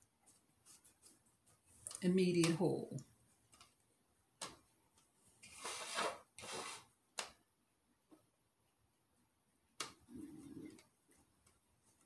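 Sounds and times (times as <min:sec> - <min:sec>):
plastic rustling scrapes: 0:05.4 - 0:06.9.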